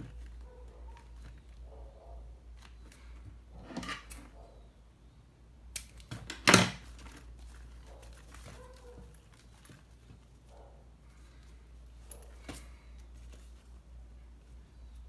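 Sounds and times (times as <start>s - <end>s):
material rustling: 6.8s - 15.0s.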